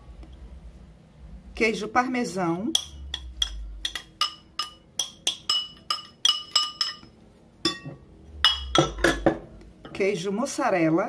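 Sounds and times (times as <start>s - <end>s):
utensil clinking against glass: 2.8s - 9.4s.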